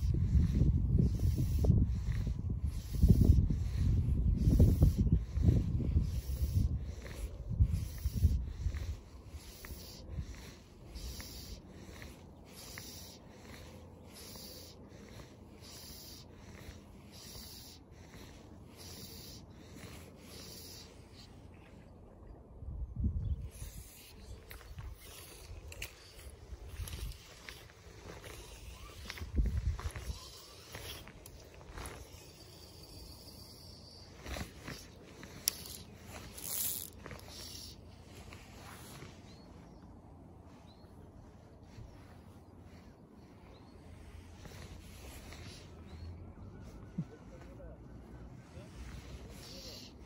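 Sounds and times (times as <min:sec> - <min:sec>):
wind rumble on microphone: 0:00.0 - 0:11.6, 0:22.1 - 0:32.3
fly line rubbing through rod guides: 0:23.5 - 0:37.8
fishing line rustling: 0:34.2 - 0:39.2.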